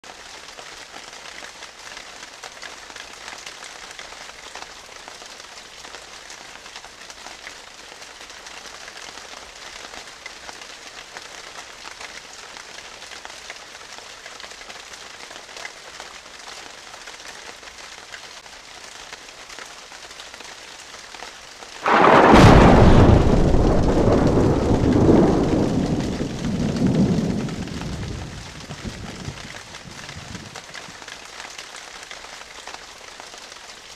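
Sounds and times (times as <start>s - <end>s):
rain hiss: 0.1s - 33.9s
loud thunderclap: 21.8s - 30.6s.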